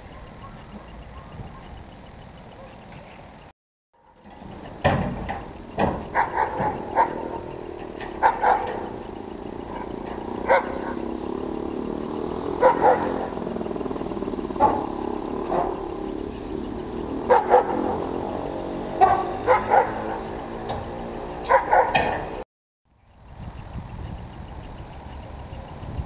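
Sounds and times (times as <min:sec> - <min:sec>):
machine engine hum: 0:00.0 - 0:26.0
dog barking: 0:00.1 - 0:01.8, 0:02.6 - 0:02.8, 0:06.1 - 0:07.4, 0:08.2 - 0:08.9, 0:09.7 - 0:11.0, 0:12.6 - 0:13.2, 0:17.3 - 0:17.9, 0:19.0 - 0:20.2, 0:21.4 - 0:22.1.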